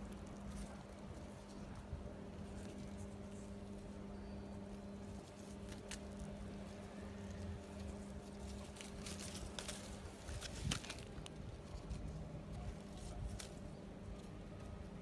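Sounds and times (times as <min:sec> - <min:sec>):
leaves and canes rustling: 0:00.0 - 0:15.0
steady low hum: 0:00.0 - 0:15.0.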